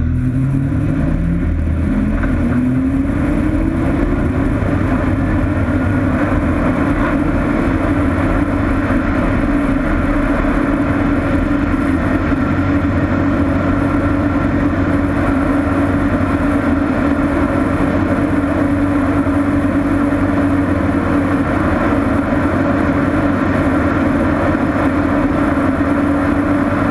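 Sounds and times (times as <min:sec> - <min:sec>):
light aircraft engine and propeller: 0:00.0 - 0:26.9.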